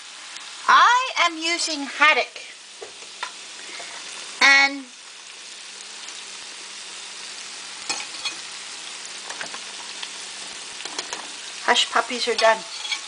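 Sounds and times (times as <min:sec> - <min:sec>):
oil sizzling: 0:00.0 - 0:13.0
metal turner clicking on pan: 0:12.3 - 0:13.0.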